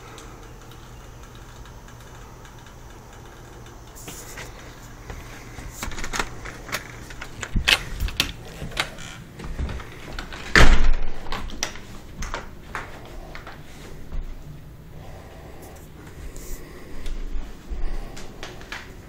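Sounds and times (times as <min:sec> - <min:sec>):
door opening and shutting: 0:05.7 - 0:12.4
loud door bang: 0:10.5 - 0:11.2.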